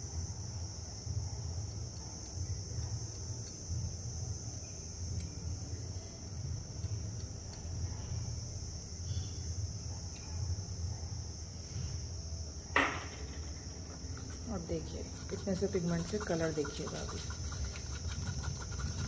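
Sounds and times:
stirring stick tapping plastic cup: 14.2s - 19.0s.

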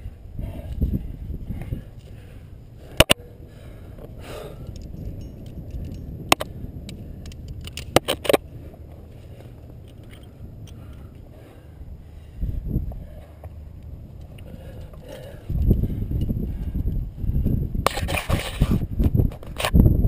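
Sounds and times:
low steady rumble: 0.0s - 18.0s
carabiners clinking: 4.4s - 11.3s.

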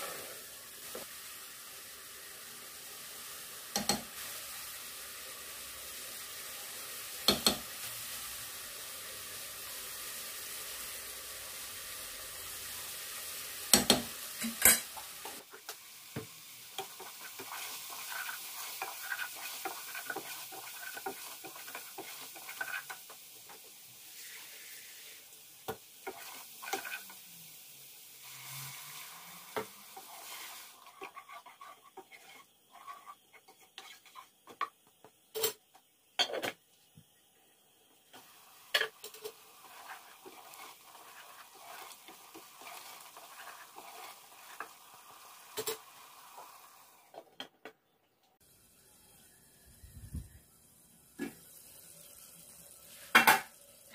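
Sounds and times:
spices sizzling in oil: 0.0s - 47.2s, 48.4s - 53.9s
spoon knocking against pan: 7.3s - 7.6s, 13.7s - 14.8s
spoon scraping pan: 16.7s - 23.6s, 26.0s - 27.2s, 28.2s - 34.8s, 38.7s - 45.9s.

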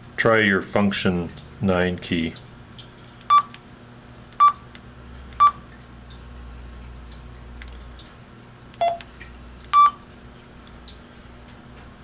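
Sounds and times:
radio keypad beeps: 3.3s - 3.5s, 8.8s - 9.0s.

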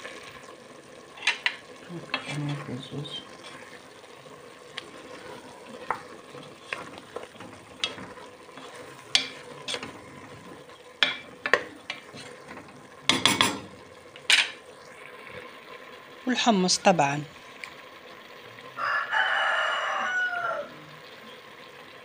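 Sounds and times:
frying sizzle: 0.0s - 22.0s
spoon scraping a pot: 1.2s - 2.7s, 3.3s - 3.9s, 4.8s - 13.6s.

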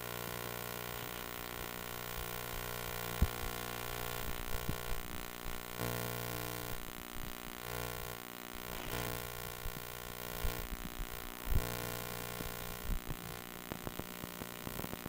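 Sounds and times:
electrical hum: 0.0s - 15.0s.

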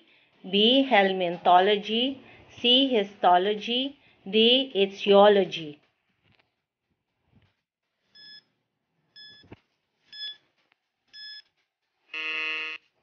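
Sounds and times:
short timer beeps: 11.2s - 11.4s.

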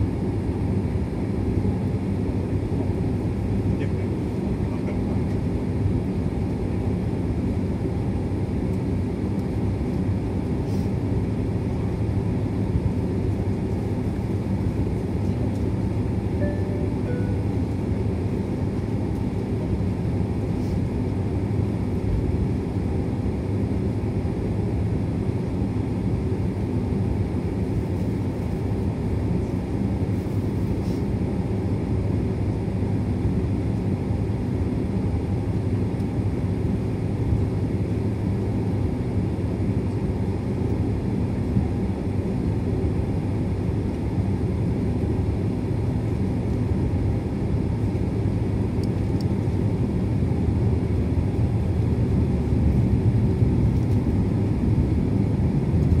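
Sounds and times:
jet engines idling hum: 0.0s - 56.0s.

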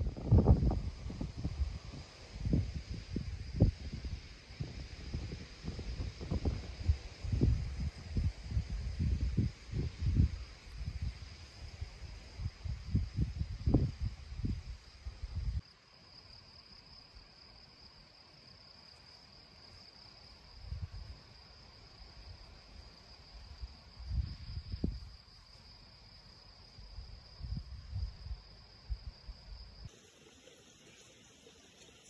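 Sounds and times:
wind gusts on microphone: 0.0s - 15.6s, 20.6s - 21.2s, 23.4s - 25.2s, 26.8s - 29.9s
insects chirring: 0.0s - 32.0s.

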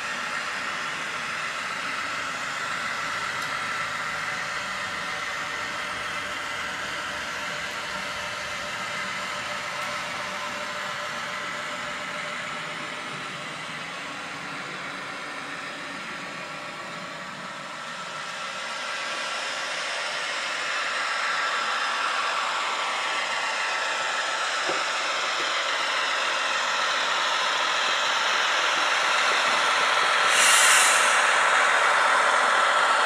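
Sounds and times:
diesel locomotive engine running: 0.0s - 33.0s
even hiss: 30.2s - 31.4s.

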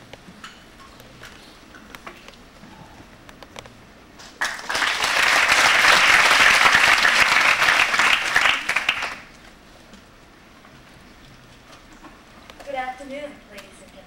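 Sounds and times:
audience applauding: 4.2s - 9.3s.

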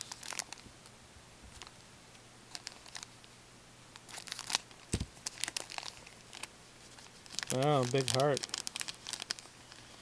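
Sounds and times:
cards flicking and rustling: 4.0s - 9.4s.

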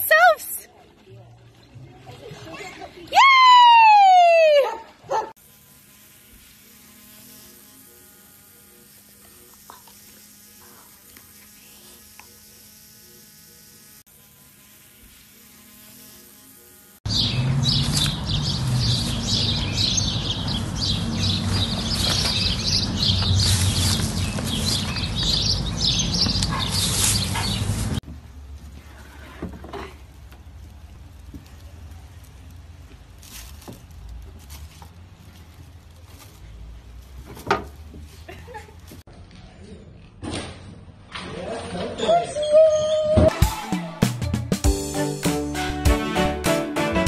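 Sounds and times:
small birds chirping: 17.1s - 27.8s.

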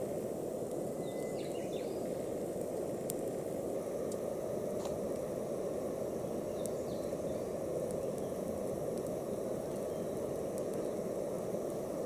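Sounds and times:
low outdoor rumble: 0.0s - 12.0s
faint ticks: 0.6s - 5.3s, 6.5s - 11.1s.

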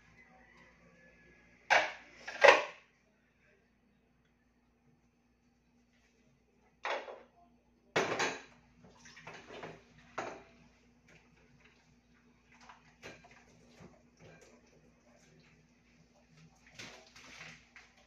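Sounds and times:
dishes clattering in sink: 1.7s - 2.8s, 6.8s - 7.3s, 8.0s - 11.2s, 12.6s - 14.8s.

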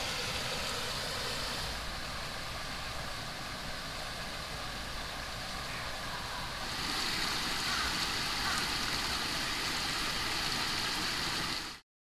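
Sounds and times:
water rushing over weir: 0.0s - 11.8s.

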